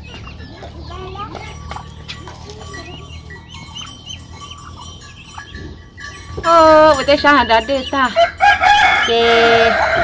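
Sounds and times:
woman speaking loudly: 9.0 - 10.0.

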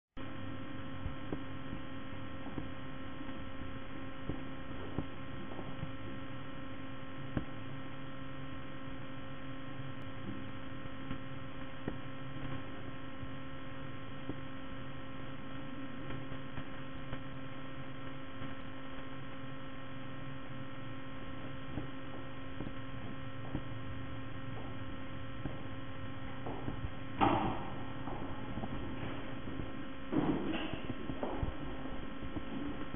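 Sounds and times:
electrical hum: 0.2 - 32.9.

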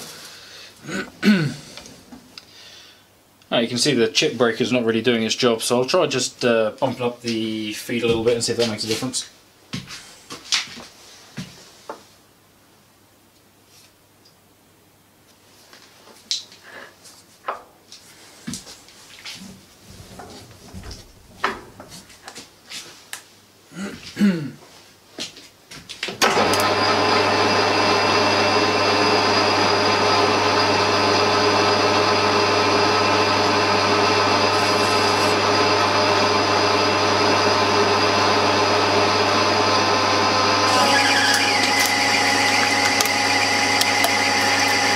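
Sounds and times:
metal lathe gear whine: 26.3 - 44.9.

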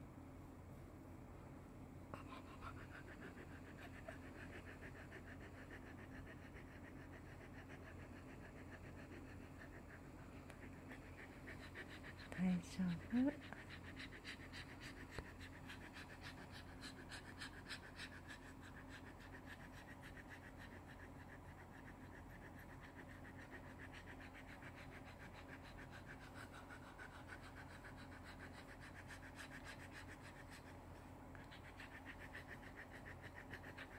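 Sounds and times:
dog panting: 2.2 - 33.9.

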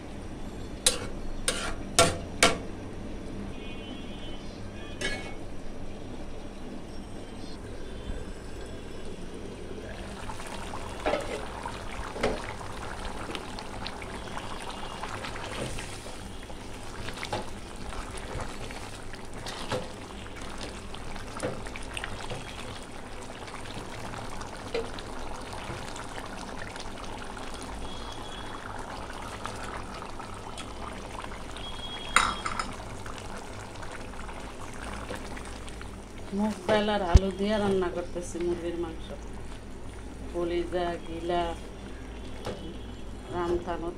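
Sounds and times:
cooking pots and utensils clinking: 0.8 - 2.6, 5.0 - 5.4, 10.4 - 12.6, 32.1 - 32.9.

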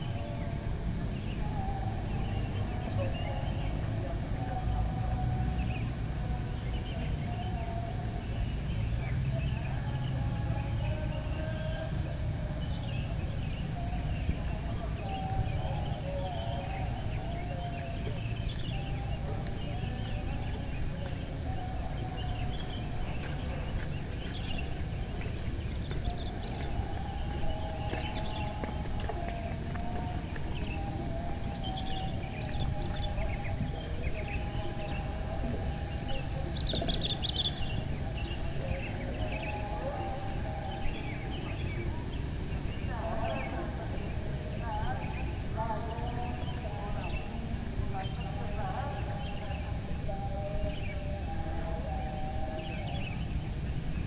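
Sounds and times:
birds chirping: 0.0 - 54.0
steady low rumble: 0.0 - 54.0
footsteps on pavement: 17.6 - 41.6.

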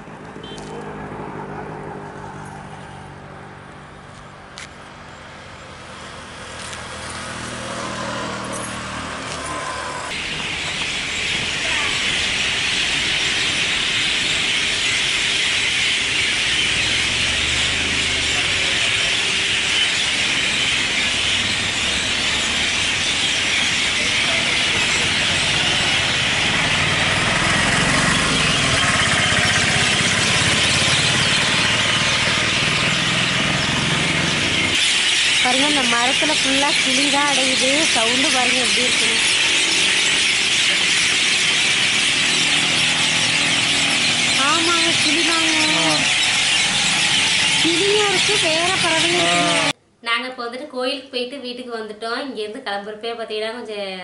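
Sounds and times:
vehicles passing: 0.0 - 49.8
parrots and birds screeching: 9.3 - 49.8.

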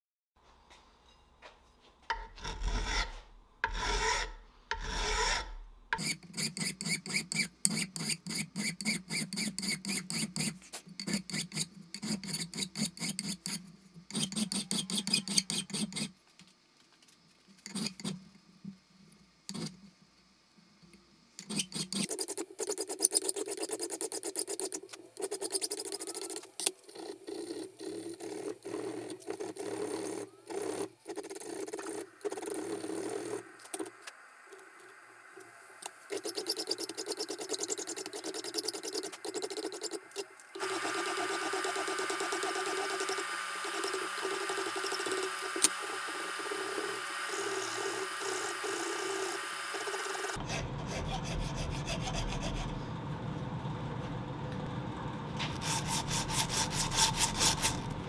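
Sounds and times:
hand file scraping: 2.1 - 16.1, 17.6 - 18.2, 21.4 - 33.8, 36.1 - 45.7, 50.3 - 52.7, 55.6 - 57.9.

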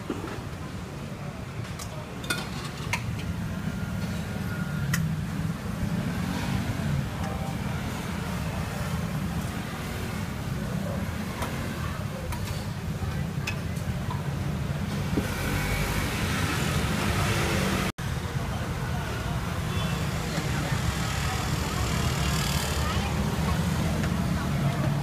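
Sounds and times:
dishes clinking: 2.2 - 3.0
faint voices: 15.9 - 25.0.

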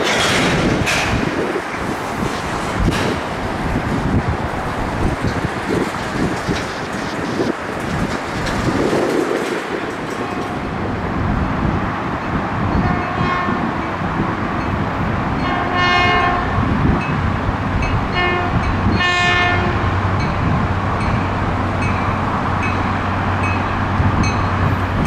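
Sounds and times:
low rumble of rail cars: 0.0 - 25.0
locomotive air horn blasts: 12.8 - 13.7, 15.4 - 16.6, 18.2 - 19.9.

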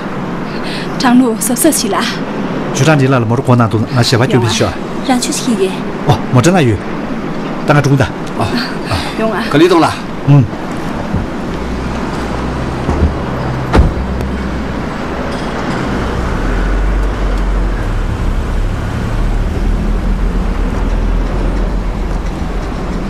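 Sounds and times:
car engine rumble driving off: 10.3 - 23.0
car door shutting: 12.8 - 14.3.

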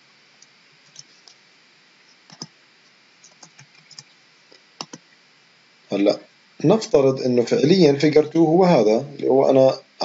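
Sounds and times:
mouse and keyboard clicks: 2.3 - 2.5, 3.2 - 4.1, 4.8 - 5.0.

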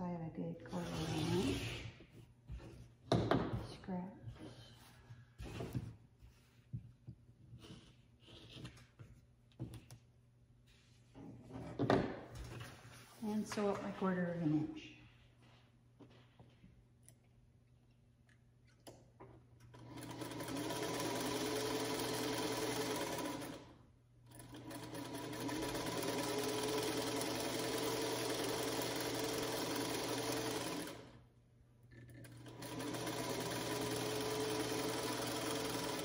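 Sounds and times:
sewing machine stitching: 0.7 - 1.8, 19.7 - 31.2, 32.0 - 36.0.

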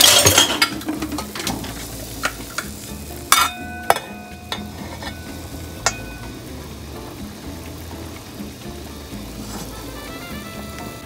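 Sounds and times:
lid clattering on pot: 0.0 - 6.3
knocks on steel bowl: 3.4 - 4.8.

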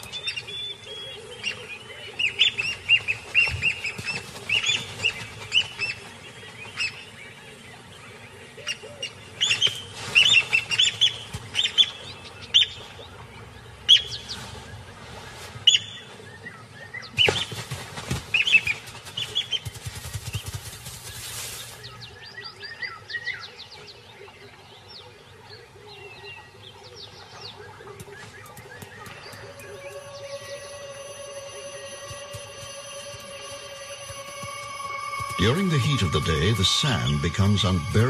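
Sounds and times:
wings beating: 2.3 - 6.9, 17.2 - 21.8, 27.9 - 38.0
plovers calling sharply: 34.6 - 38.0.

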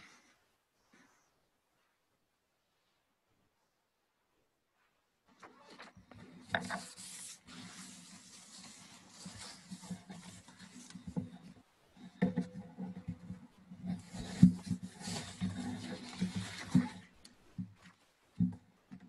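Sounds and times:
papers and book rustling: 5.3 - 19.0
small knocks: 9.3 - 19.0.

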